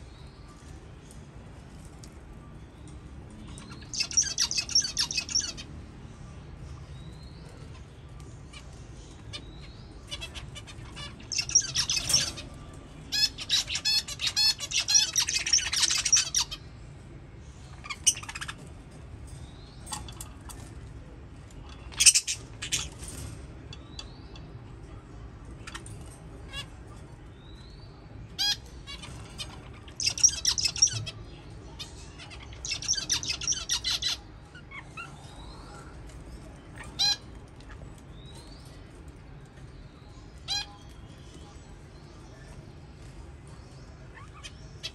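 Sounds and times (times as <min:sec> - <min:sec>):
budgerigars warbling chatter: 0:03.5 - 0:05.7, 0:08.4 - 0:16.7, 0:17.6 - 0:18.8, 0:21.6 - 0:24.5, 0:28.3 - 0:35.8, 0:36.7 - 0:38.3, 0:40.4 - 0:40.8.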